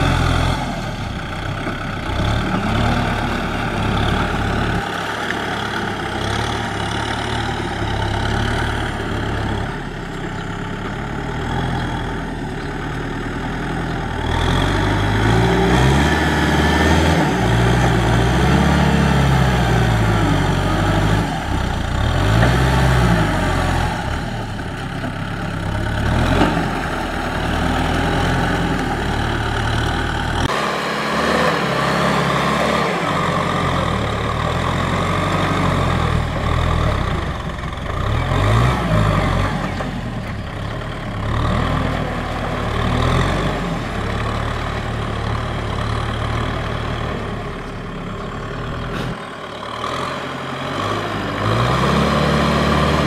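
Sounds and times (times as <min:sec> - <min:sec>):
tractor diesel engine under load: 0:00.0 - 0:53.0.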